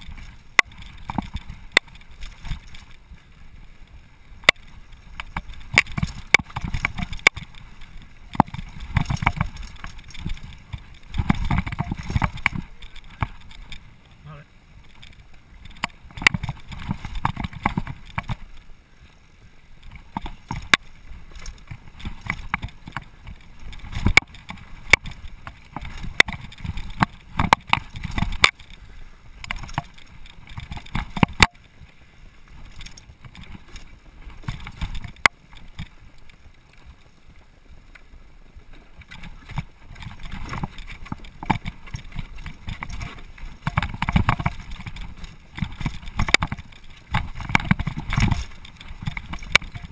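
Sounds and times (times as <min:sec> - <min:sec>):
bike tyres rumbling over stones: 0:00.0 - 0:49.9.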